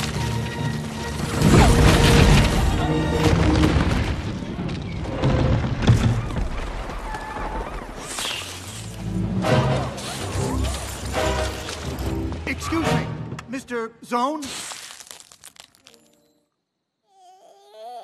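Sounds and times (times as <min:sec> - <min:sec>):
film score music: 0:00.0 - 0:14.2.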